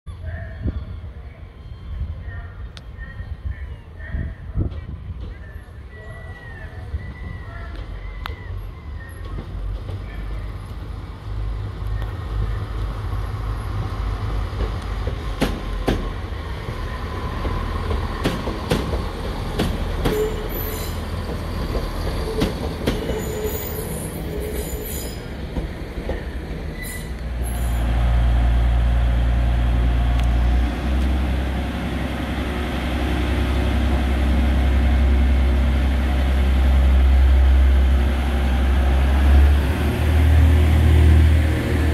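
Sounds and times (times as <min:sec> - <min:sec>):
diesel train engine drone: 0:00.2 - 0:41.9
train wheel squeal: 0:05.3 - 0:10.4, 0:20.0 - 0:25.4, 0:26.0 - 0:27.8
train wheels clicking over joints: 0:14.3 - 0:27.8.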